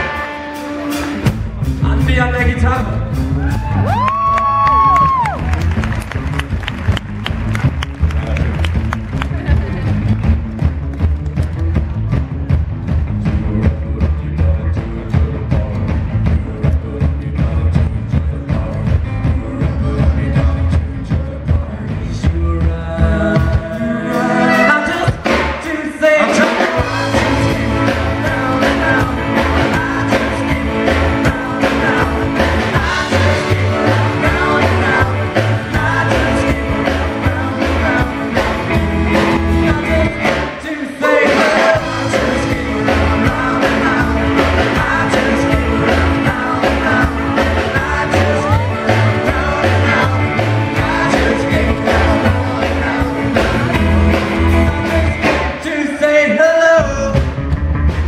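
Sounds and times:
drums: 0.0s - 58.0s
upright bass: 0.0s - 58.0s
person singing: 13.2s - 57.3s
saxophone: 24.1s - 25.1s
electric guitar: 26.2s - 55.7s.

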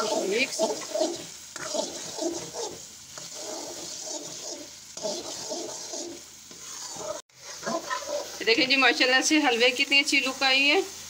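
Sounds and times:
metal spatula scraping a pan: 0.0s - 8.6s
mixture sizzling in oil: 0.0s - 11.0s.

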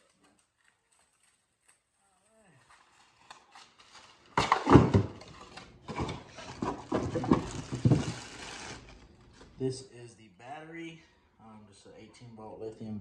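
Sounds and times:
packaging rustling and crinkling: 2.7s - 4.4s, 5.1s - 9.5s.

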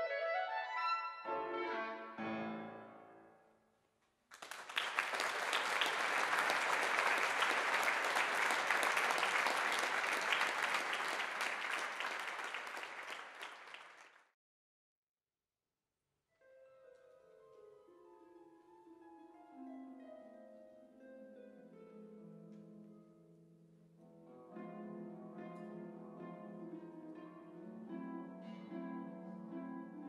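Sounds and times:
audience applauding: 4.3s - 14.3s.

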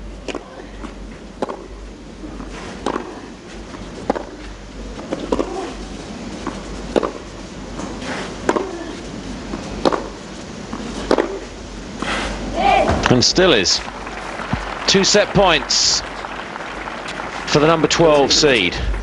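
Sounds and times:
steady background noise: 0.0s - 19.0s
racquets striking tennis ball: 1.4s - 1.7s, 2.4s - 5.7s, 6.4s - 8.8s, 9.5s - 11.4s
tennis ball bouncing on clay: 2.8s - 3.1s, 4.0s - 4.3s, 6.9s - 7.2s, 9.8s - 10.2s.

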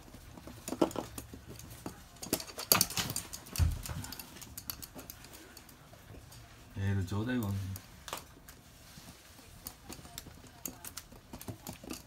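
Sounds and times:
dog claws clicking on hard floor: 0.0s - 6.4s, 9.5s - 12.0s.

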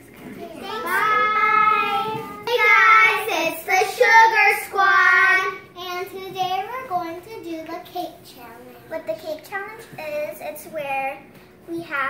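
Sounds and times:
girls singing together: 0.6s - 4.8s.

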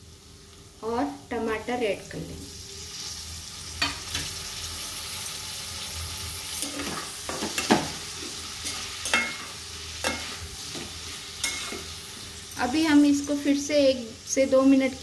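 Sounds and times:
vegetables sizzling in oil: 0.0s - 15.0s
spatula knocking and scraping pan: 6.6s - 11.9s.

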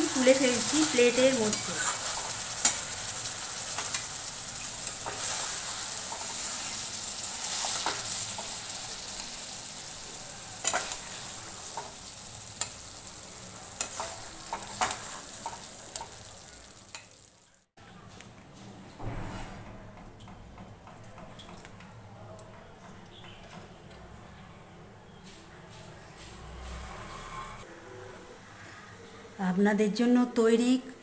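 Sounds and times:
curry sizzling in wok: 0.0s - 17.7s.

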